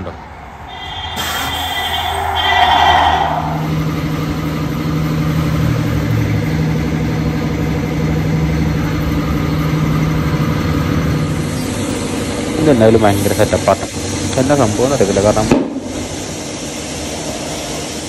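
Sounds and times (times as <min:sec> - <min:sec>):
brief loud sound: 0:00.7 - 0:04.4.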